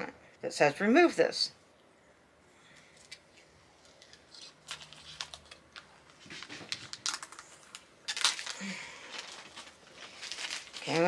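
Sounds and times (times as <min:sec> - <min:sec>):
plastic film peeling: 0:03.0 - 0:11.0.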